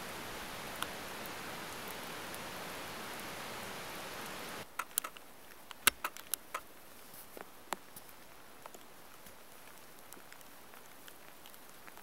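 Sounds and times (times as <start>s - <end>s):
river rushing: 0.0s - 4.7s
crunches in snow: 6.5s - 10.4s.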